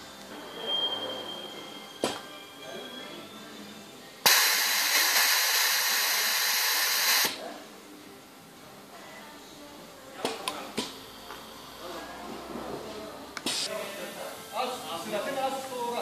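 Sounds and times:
compressed air hissing: 0:04.2 - 0:07.4.

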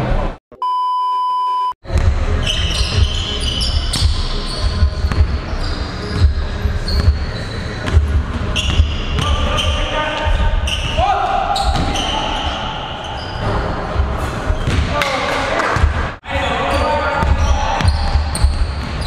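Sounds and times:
test-tone beep: 0:00.6 - 0:01.7
sneaker squeaks: 0:02.4 - 0:15.1, 0:16.6 - 0:19.0.

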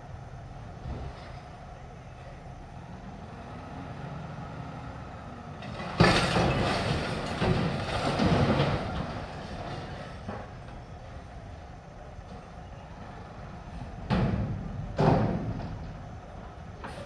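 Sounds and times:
garbage truck engine running: 0:00.0 - 0:17.0
trash crashing into hopper: 0:05.6 - 0:10.7
rattling and banging: 0:05.6 - 0:10.9, 0:13.9 - 0:17.0.

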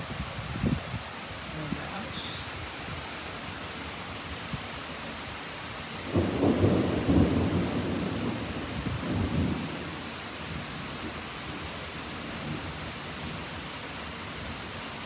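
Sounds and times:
steady rain: 0:00.0 - 0:15.0
thunder rumbling: 0:06.0 - 0:10.7.

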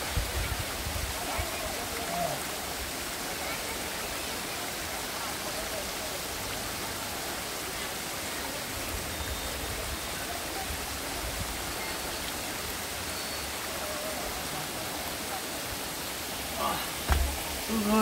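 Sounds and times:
water splashing down rocks: 0:00.0 - 0:18.0.

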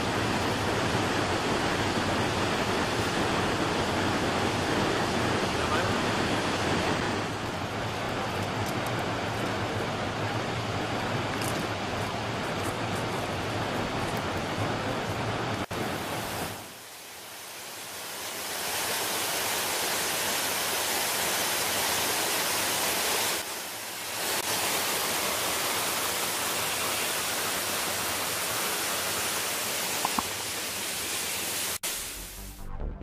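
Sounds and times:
waterfall rushing: 0:00.0 - 0:32.5.

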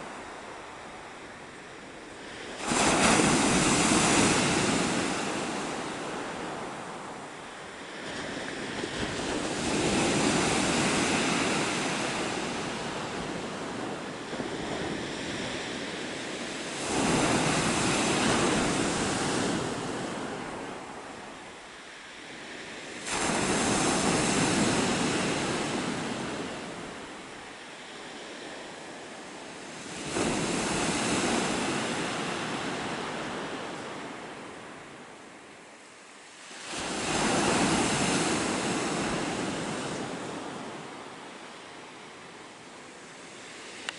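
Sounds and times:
waves breaking on pebble beach: 0:02.2 - 0:21.0, 0:22.2 - 0:27.3, 0:28.0 - 0:34.3, 0:36.4 - 0:41.0.

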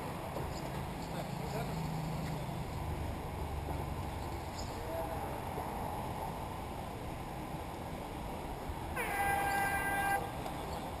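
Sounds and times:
horn-like tone: 0:09.0 - 0:10.2.

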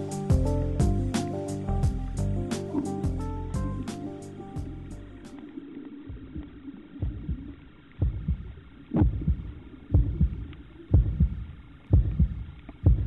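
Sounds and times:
heartbeat thumps: 0:06.1 - 0:13.0.

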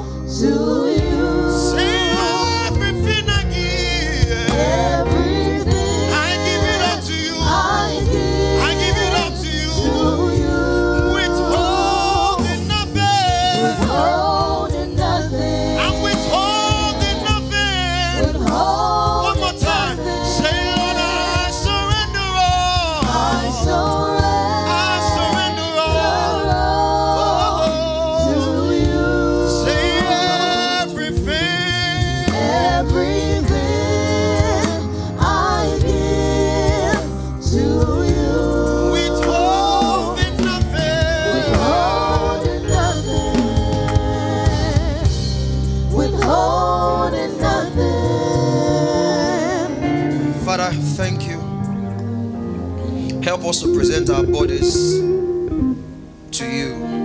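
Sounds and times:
low instrumental accompaniment: 0:00.0 - 0:57.0
man singing into microphone: 0:11.0 - 0:14.0, 0:19.2 - 0:23.6, 0:29.6 - 0:33.6, 0:38.8 - 0:43.8.

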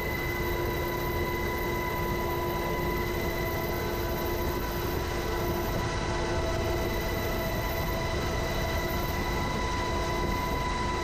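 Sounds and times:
helicopter roar inside cabin: 0:00.0 - 0:11.0.

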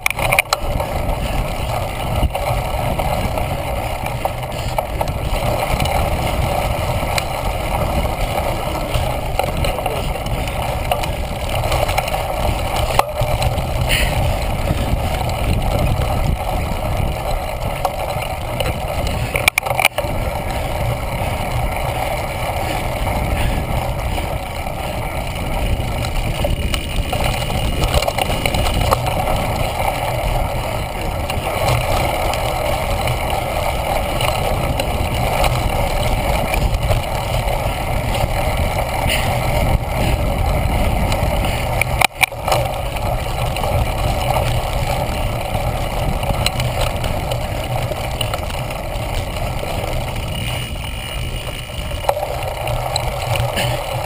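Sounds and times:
wind rush: 0:00.0 - 0:54.0.

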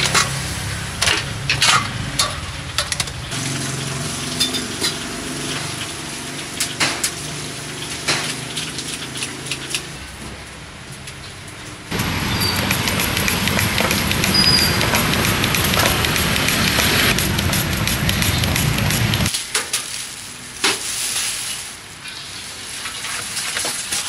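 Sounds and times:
metal utensils clinking on trays: 0:00.0 - 0:03.4, 0:04.2 - 0:16.1, 0:19.3 - 0:24.0.

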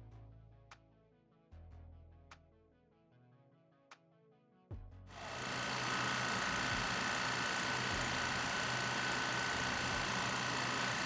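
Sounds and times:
machine drone: 0:05.1 - 0:11.0.

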